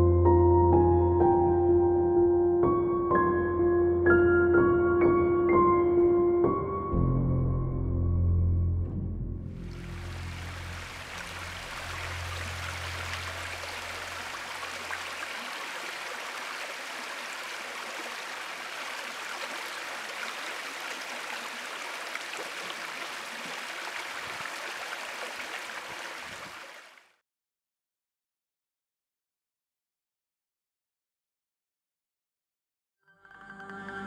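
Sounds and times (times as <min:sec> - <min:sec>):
brook trickling over stones: 0:09.6 - 0:27.0.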